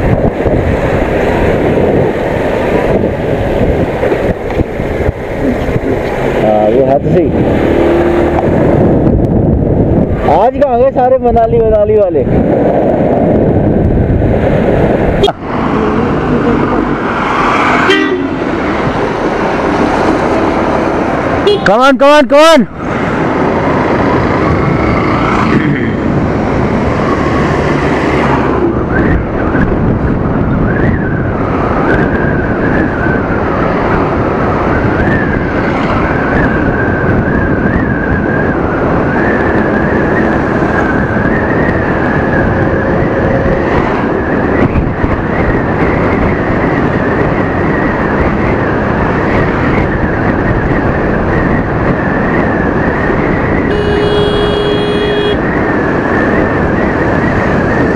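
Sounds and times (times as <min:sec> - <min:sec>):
wind rush: 0:00.0 - 0:57.9
scooter engine: 0:53.7 - 0:55.4.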